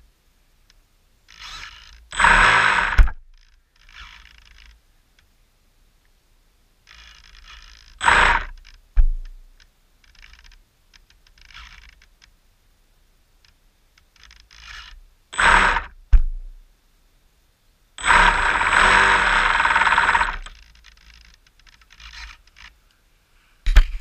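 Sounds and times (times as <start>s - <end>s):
sharp knock: 9.0s - 9.3s, 16.1s - 16.5s, 23.7s - 24.0s.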